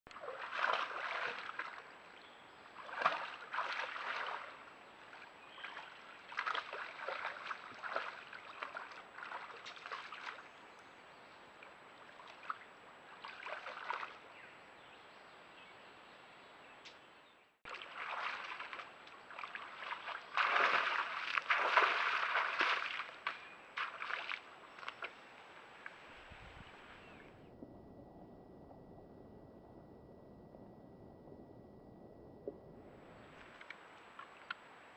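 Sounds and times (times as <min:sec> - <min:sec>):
animal legs splashing water: 0:00.1 - 0:10.8, 0:11.6 - 0:14.3, 0:17.7 - 0:26.0.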